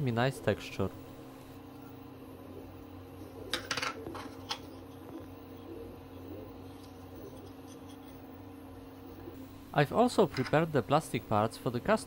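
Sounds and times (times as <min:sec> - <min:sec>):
steady background hum: 0:00.0 - 0:12.0.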